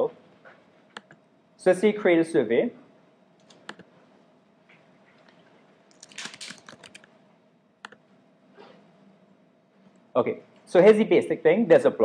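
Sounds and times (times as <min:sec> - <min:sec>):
typing on computer keyboard: 0:05.9 - 0:07.1.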